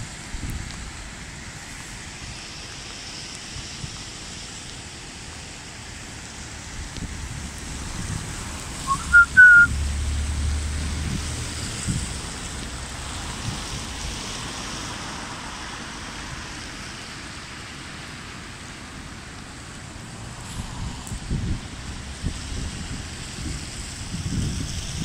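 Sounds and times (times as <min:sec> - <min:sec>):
flooded river rushing: 0:00.0 - 0:24.2
heavy rain: 0:00.0 - 0:25.0
short whistle-like notes: 0:08.8 - 0:09.7.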